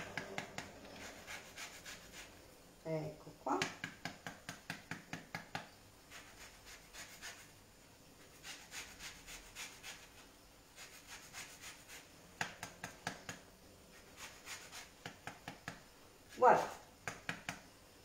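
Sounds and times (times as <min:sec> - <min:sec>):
blade rasping lemon on board: 0:00.0 - 0:02.3, 0:14.0 - 0:15.2.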